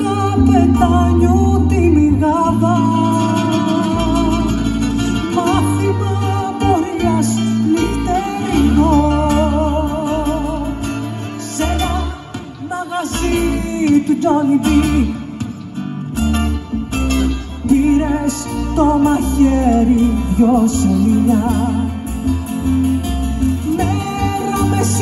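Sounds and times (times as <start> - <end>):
melody of long vibrato notes: 0.0 - 12.2
acoustic guitars playing: 0.0 - 25.0.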